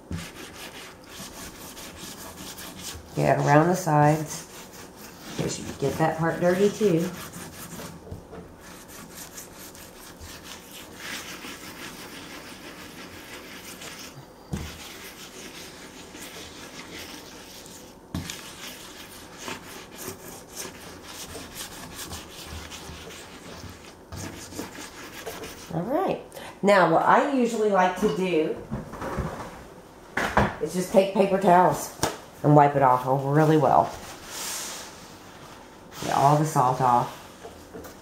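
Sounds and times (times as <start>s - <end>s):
lemon rubbing salt into wood: 0.1s - 8.0s.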